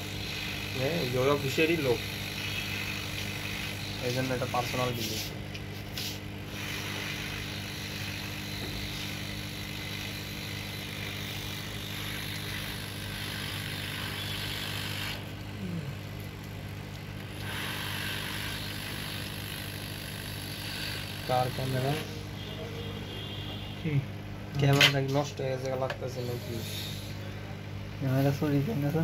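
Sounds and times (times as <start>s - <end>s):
hot-air tool hissing: 0.0s - 16.0s, 17.4s - 22.1s, 26.2s - 27.3s.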